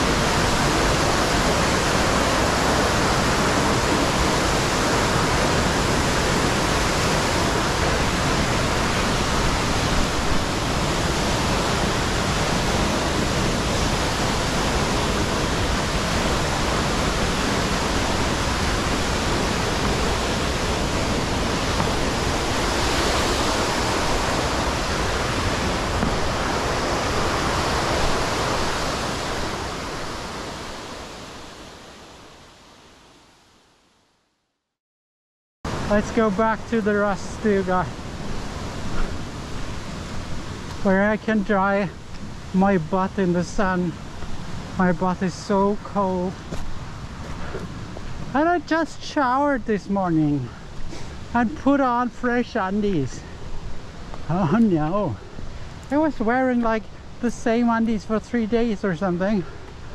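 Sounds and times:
running water rushing: 0.0 - 33.6, 35.7 - 59.9.

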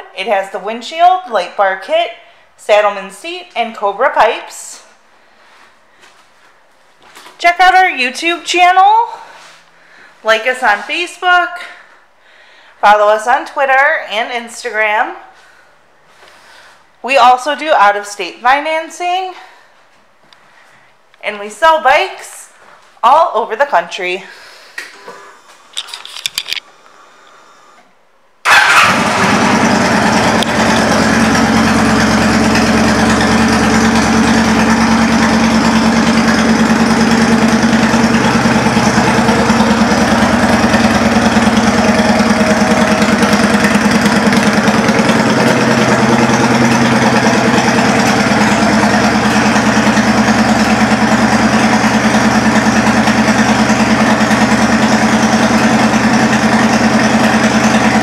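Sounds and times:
motorcycle engine starting and idling: 28.4 - 58.0.

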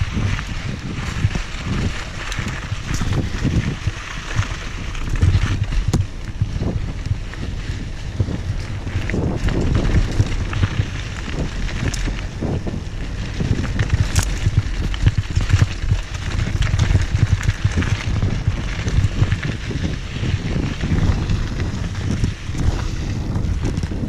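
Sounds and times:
bike rattling and clicking: 0.0 - 24.0
tyres rumbling on gravel: 0.0 - 24.0
wind buffeting microphone: 0.0 - 24.0.

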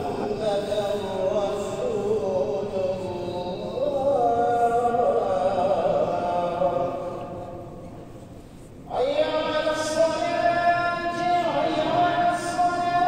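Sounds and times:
person chanting melodically: 8.9 - 13.0.

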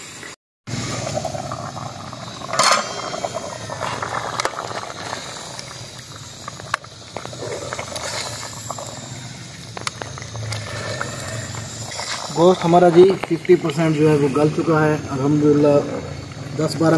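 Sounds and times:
pot simmering: 0.0 - 16.9
ladle stirring pot: 6.4 - 13.7.

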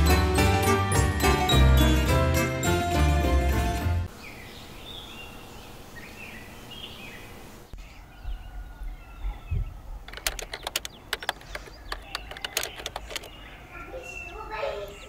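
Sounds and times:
steady background hiss: 4.1 - 8.0
birds chirping: 4.1 - 15.0
sharp clicks: 10.0 - 13.4.

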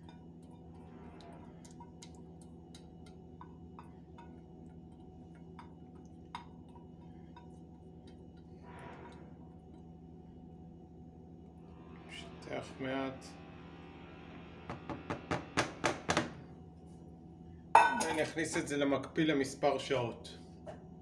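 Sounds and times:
steady low hum: 0.0 - 21.0
spatula tapping a metal bowl: 2.7 - 8.4.

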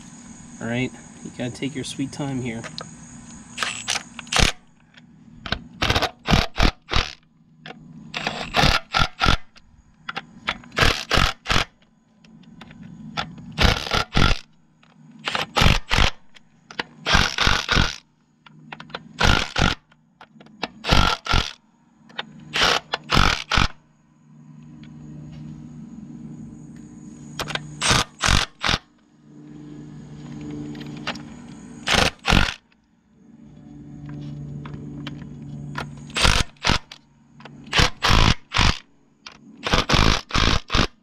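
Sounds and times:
impact wrench bursts: 3.5 - 4.7, 5.5 - 7.2, 8.1 - 9.6, 10.5 - 11.8, 13.6 - 14.5, 15.2 - 18.0, 18.8 - 20.0, 20.6 - 21.6, 22.5 - 23.8, 27.4 - 28.9, 31.8 - 32.6, 36.1 - 41.0.

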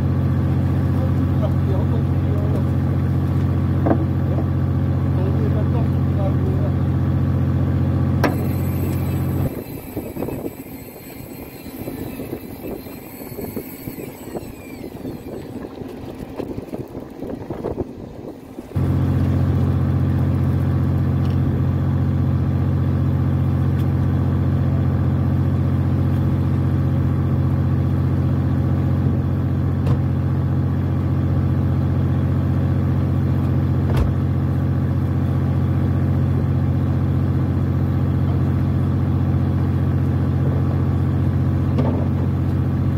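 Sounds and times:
boat engine droning: 0.0 - 32.0.

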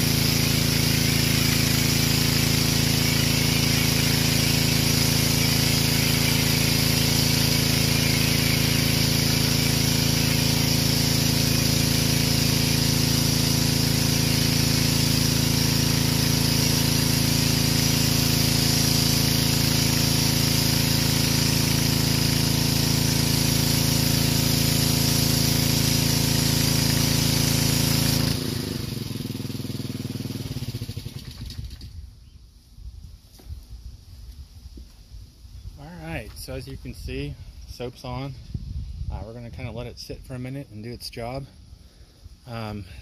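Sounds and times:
foam blaster spraying hiss: 0.0 - 31.0
pressure washer engine running: 0.0 - 32.0, 41.0 - 43.0.

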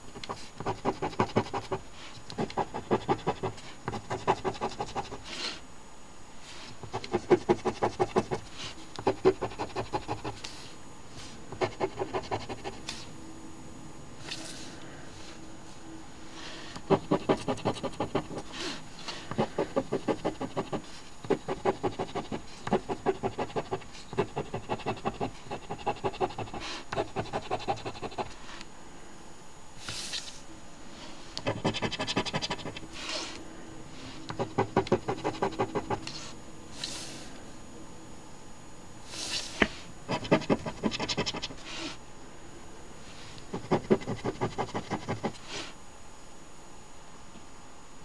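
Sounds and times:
coin scratching lottery ticket: 16.9 - 18.5, 31.4 - 33.2, 40.1 - 41.6, 43.6 - 45.4.

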